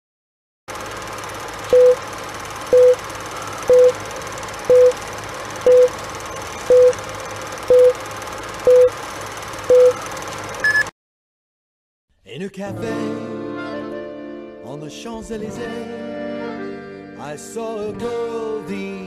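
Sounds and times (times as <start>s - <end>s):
short beeps: 1.7s - 2.0s, 2.7s - 3.0s, 3.7s - 4.0s, 4.7s - 5.0s, 5.6s - 5.9s, 6.7s - 7.0s, 7.7s - 8.0s, 8.7s - 8.9s, 9.7s - 10.0s, 10.6s - 10.9s.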